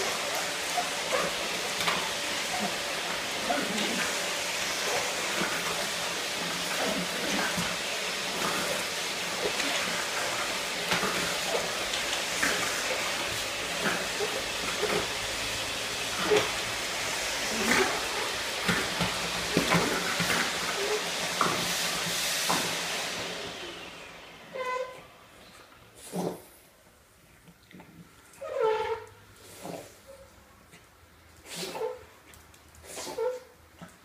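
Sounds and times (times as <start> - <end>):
vacuum cleaner running: 0.0 - 26.6.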